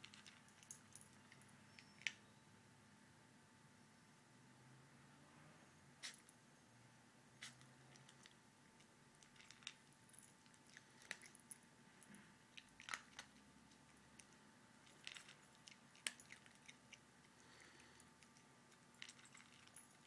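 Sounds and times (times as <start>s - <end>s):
dog chewing dry kibble: 0.0s - 2.0s, 7.4s - 11.5s, 12.5s - 20.0s.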